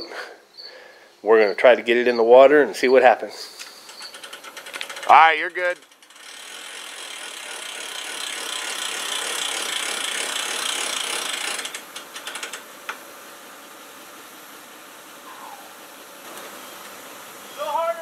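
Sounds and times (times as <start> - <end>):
hand winch ratcheting: 3.6 - 12.7.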